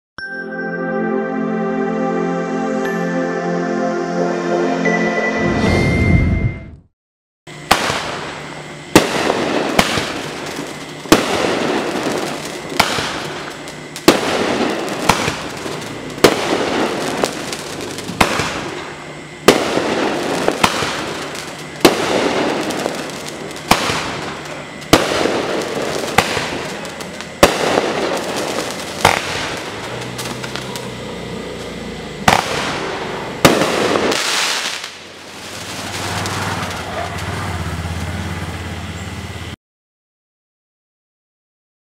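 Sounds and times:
firework cake shots: 0:09.0 - 0:18.8, 0:19.4 - 0:31.1.

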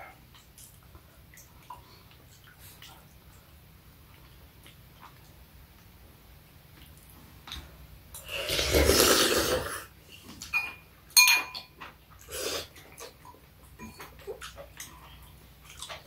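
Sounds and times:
slurping soup off a spoon: 0:08.2 - 0:09.9
spoon clinking ceramic bowl: 0:10.5 - 0:11.7.

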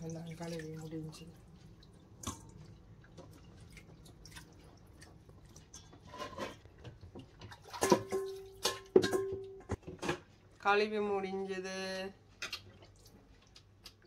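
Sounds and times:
water dripping: 0:00.0 - 0:06.0.

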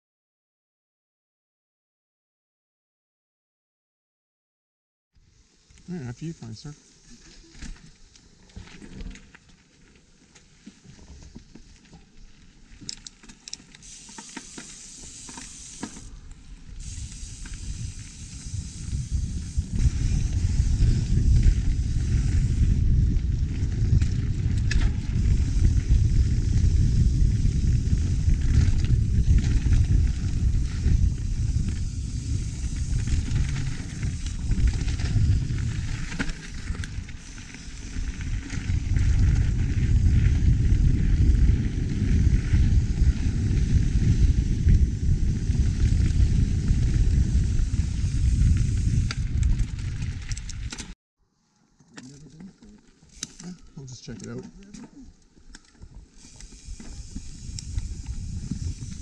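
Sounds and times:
bike clicks and rattles: 0:06.9 - 0:51.0, 0:51.7 - 0:59.0
tyre hiss: 0:13.8 - 0:16.2, 0:16.8 - 0:20.9
wind rumble on microphone: 0:16.1 - 0:51.0, 0:55.8 - 0:59.0.

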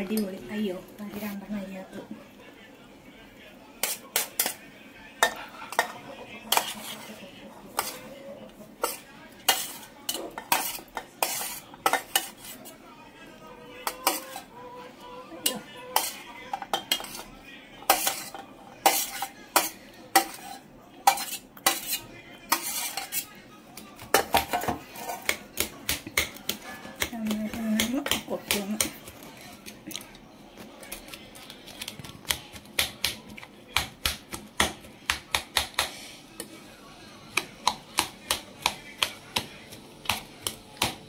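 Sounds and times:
metal spoon clinking against pan: 0:13.8 - 0:14.4, 0:15.4 - 0:17.3, 0:17.9 - 0:23.2.

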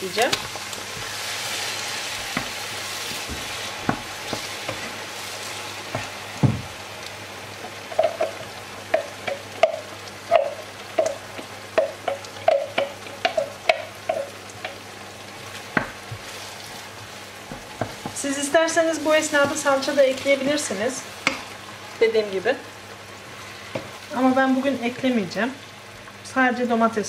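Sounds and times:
tomato sizzling in oil: 0:00.0 - 0:27.0.

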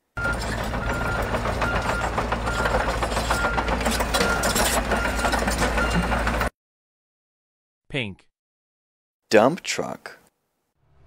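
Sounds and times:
bulldozer engine rumble: 0:00.1 - 0:06.5
dense clanking rattle: 0:00.2 - 0:06.5.

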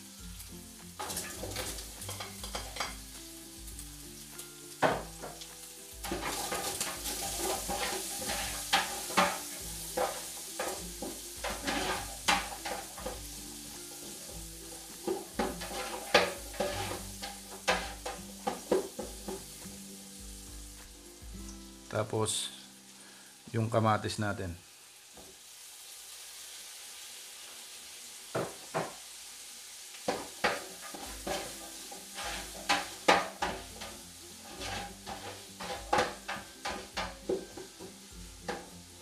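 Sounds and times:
garlic and onion sizzling: 0:00.0 - 0:39.0
utensil knocking against pan: 0:04.8 - 0:05.4, 0:06.0 - 0:13.3, 0:15.0 - 0:19.6, 0:32.2 - 0:38.7.

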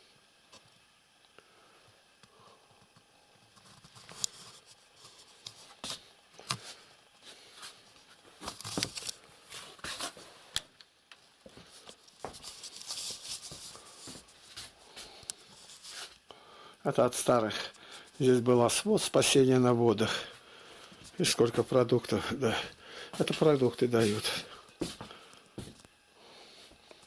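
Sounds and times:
rustling: 0:11.6 - 0:16.2.

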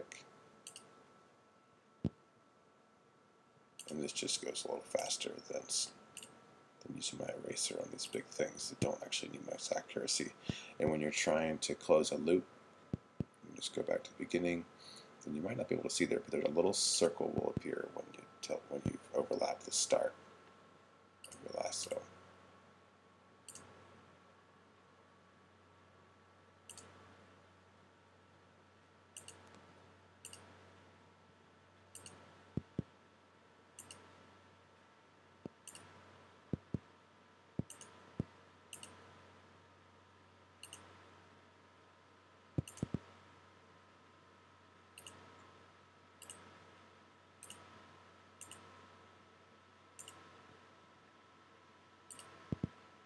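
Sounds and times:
faint steady hum: 0:00.0 - 0:53.0
computer mouse clicking: 0:00.1 - 0:00.9, 0:06.2 - 0:06.4, 0:23.5 - 0:23.7, 0:26.7 - 0:27.0, 0:29.2 - 0:29.6, 0:30.2 - 0:30.5, 0:31.9 - 0:32.9, 0:33.8 - 0:34.1, 0:35.4 - 0:35.9, 0:37.6 - 0:39.0, 0:40.6 - 0:40.9, 0:42.6 - 0:43.1, 0:45.0 - 0:45.2, 0:46.2 - 0:46.5, 0:47.4 - 0:47.6, 0:48.4 - 0:48.7, 0:50.0 - 0:50.2, 0:52.1 - 0:52.7.

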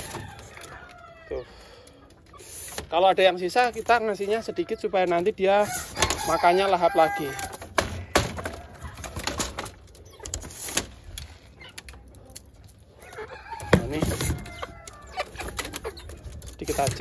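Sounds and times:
wooden cage slats rattling: 0:00.0 - 0:00.9, 0:05.0 - 0:12.1, 0:13.5 - 0:17.0
chickens clucking: 0:00.0 - 0:17.0.

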